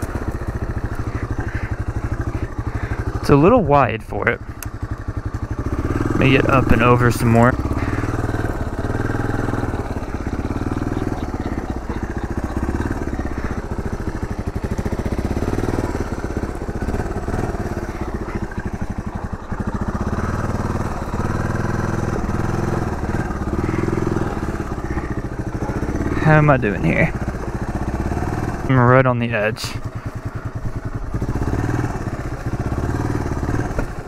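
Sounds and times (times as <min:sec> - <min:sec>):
engine running at low revs: 0:00.0 - 0:34.0.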